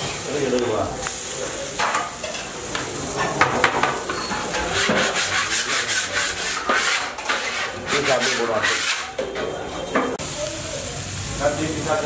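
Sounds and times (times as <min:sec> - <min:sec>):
metal spatula scraping cookware: 0:01.8 - 0:10.2.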